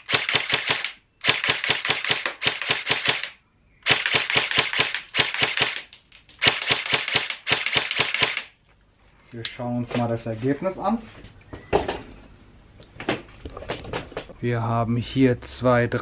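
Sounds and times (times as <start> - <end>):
airsoft rifle shots: 0.0 - 8.6.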